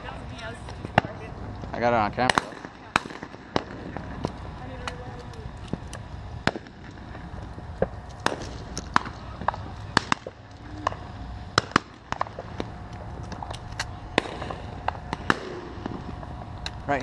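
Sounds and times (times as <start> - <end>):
low steady background noise: 0.0 - 17.0
shotgun shots: 2.2 - 4.1, 6.4 - 7.1, 7.8 - 10.4, 11.5 - 12.6, 14.1 - 16.2.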